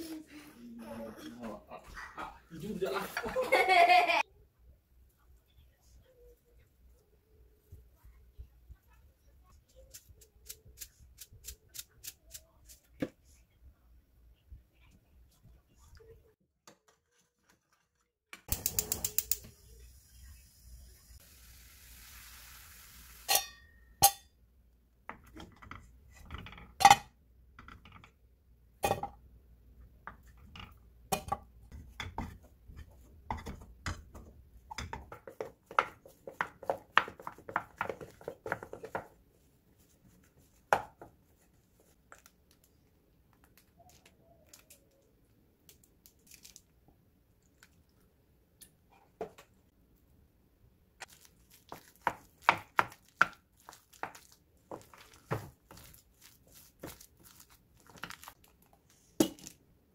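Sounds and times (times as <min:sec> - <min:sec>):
hiss: 0:21.2 - 0:23.3.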